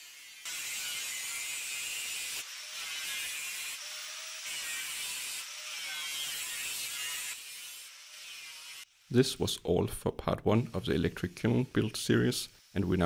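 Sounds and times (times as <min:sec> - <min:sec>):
angle grinder cutting sheet steel: 0:00.0 - 0:09.1.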